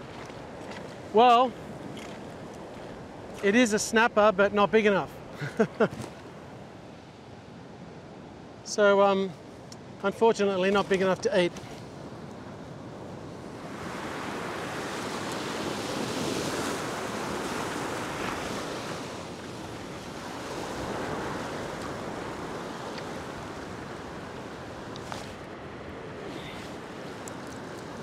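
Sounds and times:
ocean surf washing over rock: 12.8s - 28.0s.

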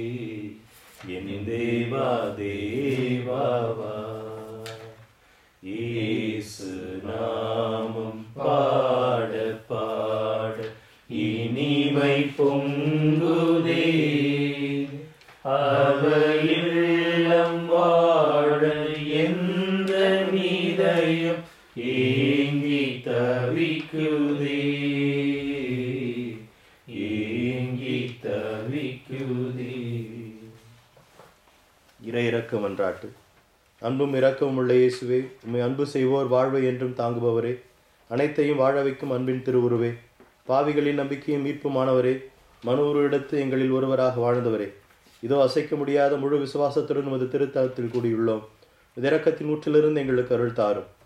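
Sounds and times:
man singing a devotional hymn: 0.0s - 30.8s.

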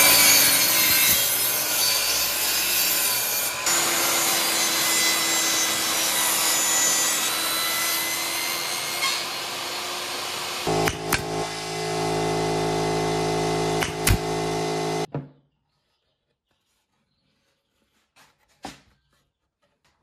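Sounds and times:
table saw running: 8.9s - 15.1s
steady machine hum: 10.7s - 15.1s.

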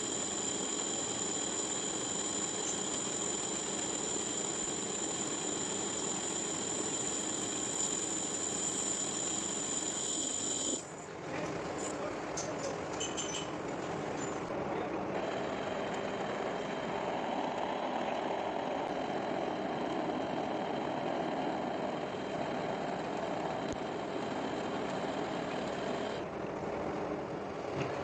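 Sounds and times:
faint high whine: 0.0s - 10.9s
metal lathe humming: 0.0s - 10.9s, 15.1s - 26.2s.

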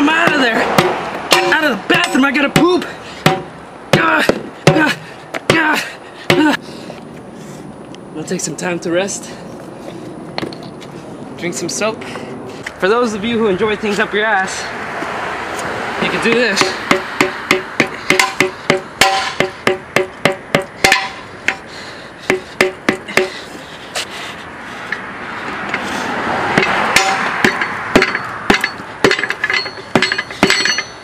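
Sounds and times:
hammer striking steel crowbar: 0.2s - 4.9s, 16.6s - 21.6s, 22.3s - 23.4s, 26.6s - 31.0s.

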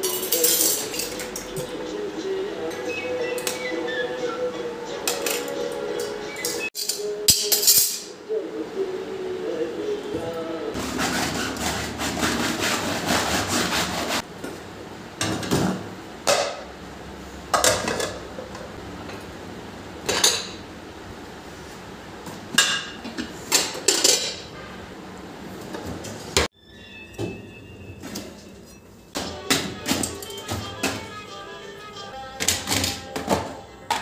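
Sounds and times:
dishes clinking into drawer basket: 0.0s - 1.7s, 20.0s - 20.6s, 22.6s - 24.5s.

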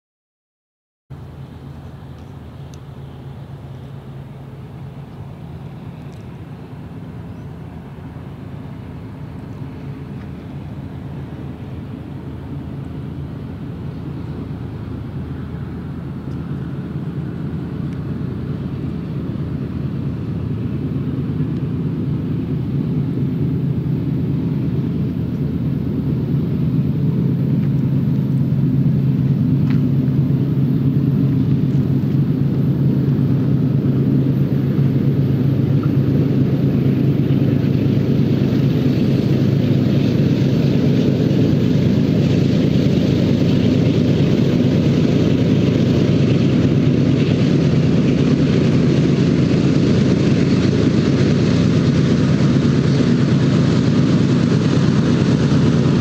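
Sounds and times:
diesel locomotive engine drone: 1.1s - 56.0s.

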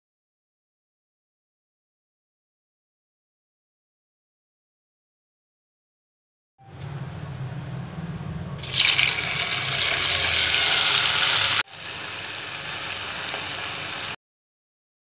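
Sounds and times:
hot oil sizzling: 8.6s - 14.2s.

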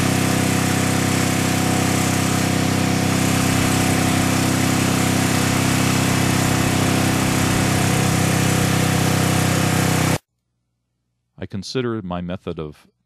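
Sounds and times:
generator engine running: 0.0s - 10.2s.

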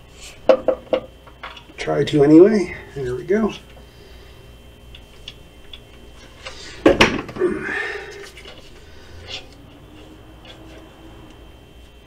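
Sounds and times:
metal scrape: 8.2s - 11.3s.

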